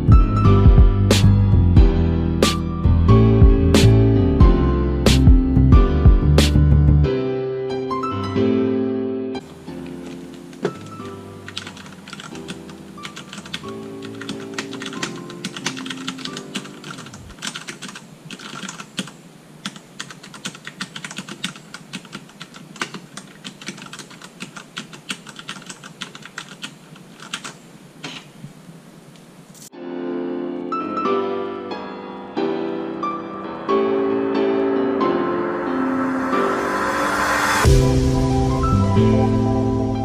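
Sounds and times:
soft background music: 0:00.0 - 0:17.3, 0:29.8 - 0:40.0
mechanical keyboard typing: 0:09.8 - 0:27.6.

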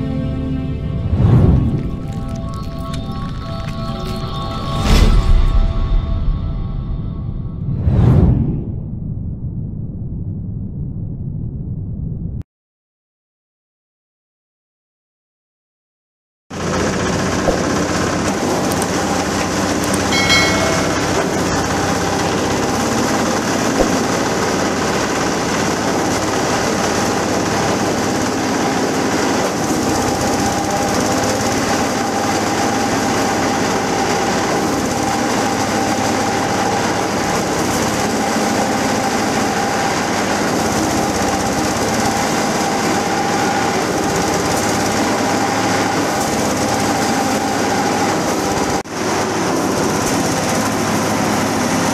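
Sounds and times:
diesel engine running: 0:16.5 - 0:51.9
husk shredder rattling and grinding: 0:16.6 - 0:51.9.

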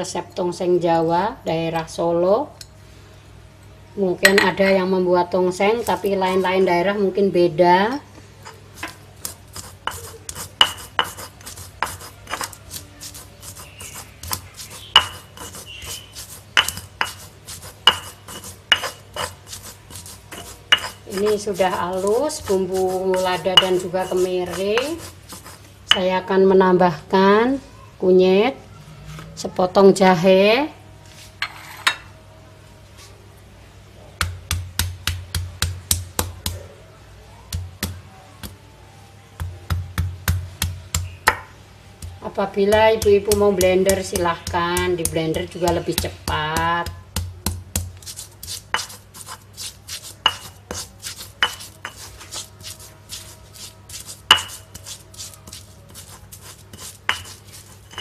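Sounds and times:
stone pestle grinding in mortar: 0:05.7 - 0:06.7, 0:08.4 - 0:26.0, 0:42.0 - 0:58.0.

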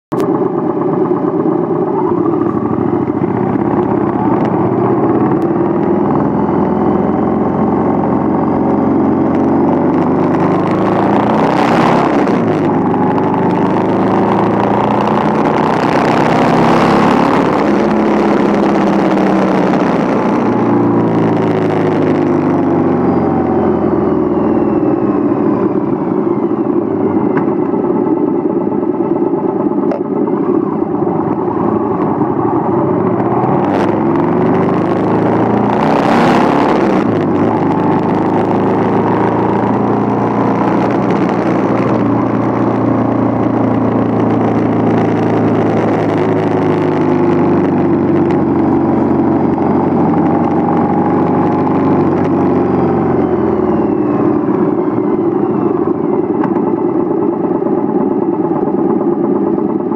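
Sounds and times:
motorcycle engine running: 0:00.1 - 0:59.9.

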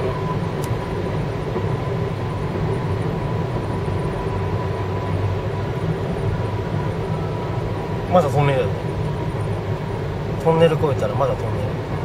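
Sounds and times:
car driving through tunnel: 0:00.0 - 0:12.0.

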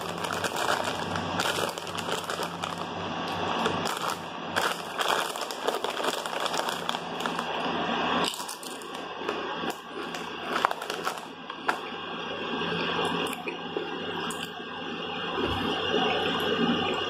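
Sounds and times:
chips being chewed: 0:00.0 - 0:02.9, 0:03.5 - 0:07.6, 0:08.2 - 0:11.8
chip bag crinkling: 0:00.0 - 0:11.8.

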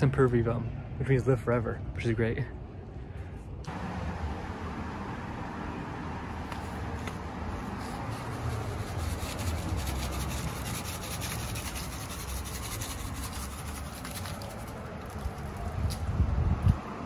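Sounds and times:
paper rustling: 0:06.5 - 0:15.8
seeds rattling in paper packet: 0:09.4 - 0:15.6.

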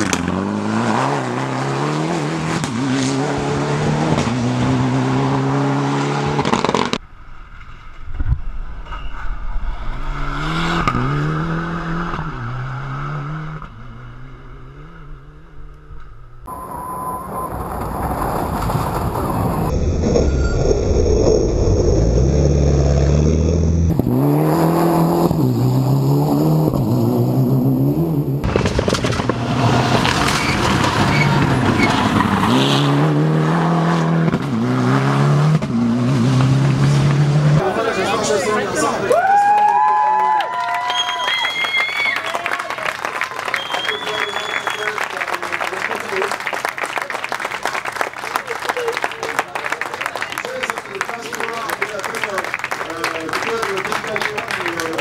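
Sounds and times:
rally car engine accelerating: 0:00.0 - 0:07.0, 0:09.7 - 0:38.8.

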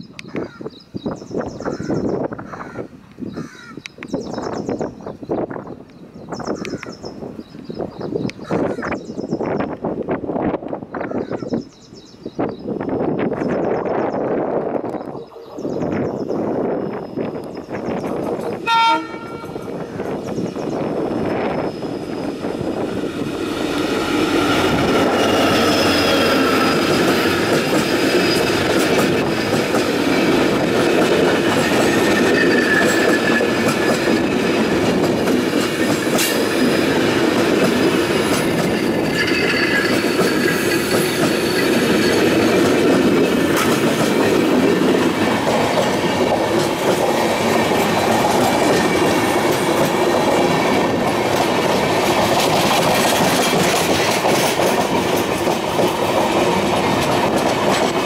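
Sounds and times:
train wheels rumbling on rails: 0:04.0 - 0:58.0
clickety-clack over rail joints: 0:23.3 - 0:58.0
wheel squeal: 0:31.7 - 0:34.1, 0:38.4 - 0:42.7.

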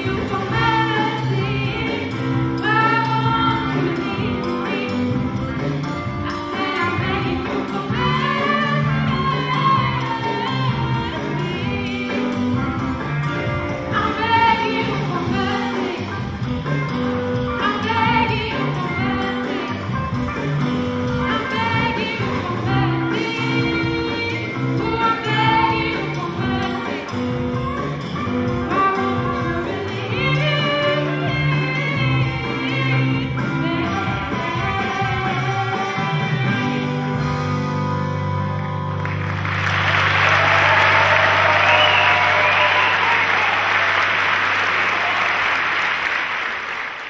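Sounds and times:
woman singing into a microphone: 0:00.0 - 0:05.4, 0:06.2 - 0:12.4, 0:13.9 - 0:16.3, 0:17.6 - 0:20.1, 0:21.1 - 0:27.3, 0:28.7 - 0:37.1.

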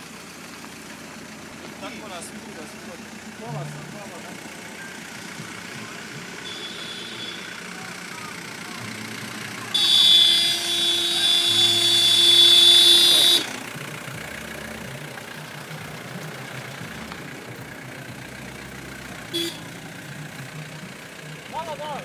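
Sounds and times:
car engines running: 0:00.0 - 0:22.0
car horn blaring: 0:06.0 - 0:13.8, 0:19.2 - 0:20.0
short car horn honk: 0:06.4 - 0:07.6, 0:09.7 - 0:13.6, 0:19.3 - 0:19.7.

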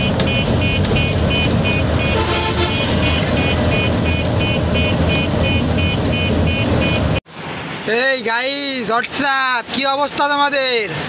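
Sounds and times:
rapid electronic beeping: 0:00.0 - 0:07.2
horn toot: 0:00.3 - 0:07.2.

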